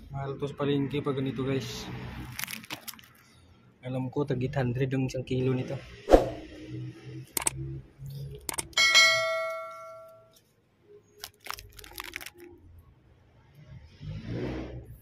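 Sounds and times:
faint clicks and rustles: 2.2s - 3.4s, 10.3s - 12.6s
mouse click: 7.4s - 7.6s
bell ding: 8.8s - 10.3s.

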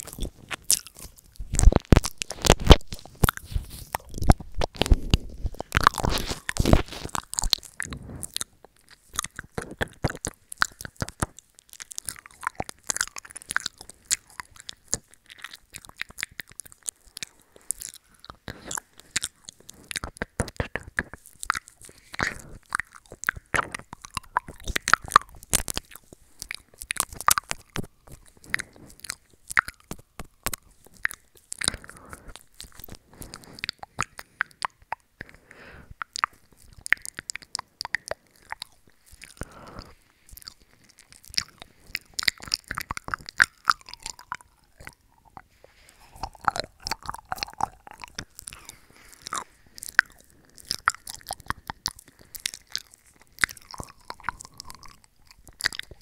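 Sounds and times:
wet mouth smacking and sucking: 0.0s - 56.0s.

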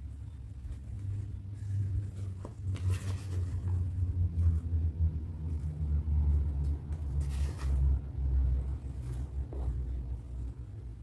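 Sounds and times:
rustling of satin gown: 0.5s - 4.7s.

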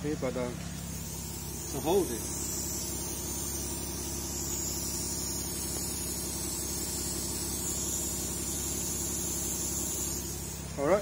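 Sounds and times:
low steady hum: 0.0s - 11.0s
liquid spray hissing: 0.3s - 11.0s.

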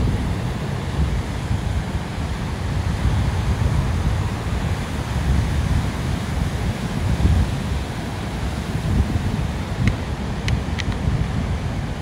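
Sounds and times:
sea waves washing onto beach: 0.0s - 12.0s
wind buffeting microphone: 0.0s - 12.0s.

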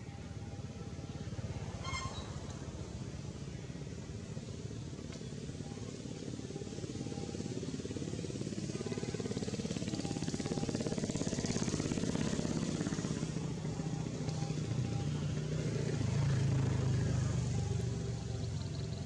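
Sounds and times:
vehicle engine passing: 6.0s - 19.0s.

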